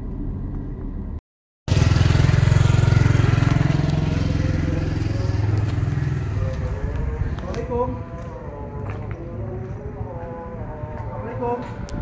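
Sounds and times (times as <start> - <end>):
vehicle noise: 0.0 - 12.0
motorcycle engine running: 1.7 - 9.8.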